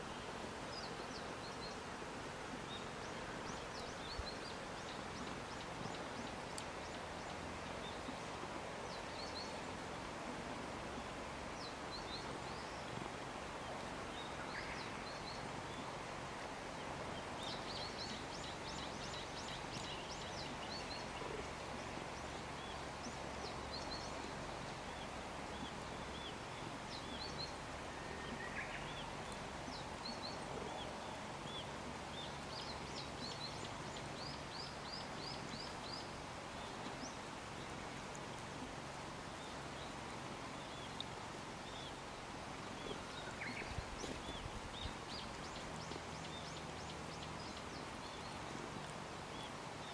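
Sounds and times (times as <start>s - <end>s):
steady outdoor hush: 0.0s - 49.9s
small birds chirping: 17.1s - 38.6s, 39.2s - 49.9s.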